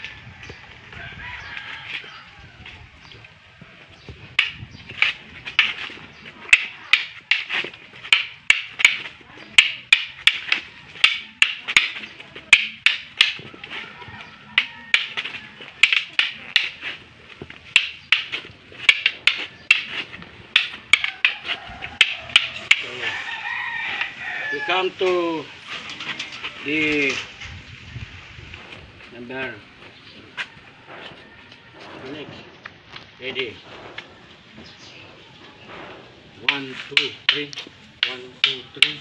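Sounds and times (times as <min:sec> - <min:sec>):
wooden sticks clacking together: 0:03.9 - 0:24.2, 0:25.0 - 0:27.4, 0:36.4 - 0:39.0.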